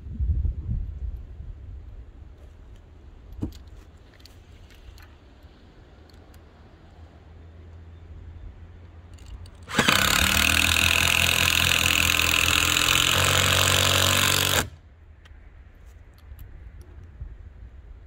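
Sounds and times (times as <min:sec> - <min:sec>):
power tool running: 0:09.6 - 0:14.8.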